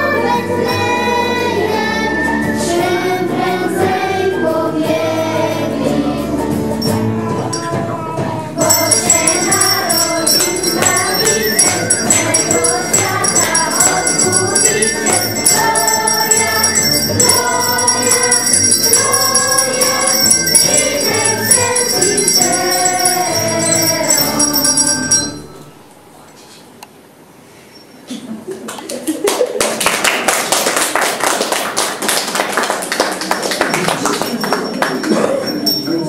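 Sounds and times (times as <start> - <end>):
children singing: 0.0 - 25.5
bells jingling: 8.6 - 25.7, 33.7 - 36.0.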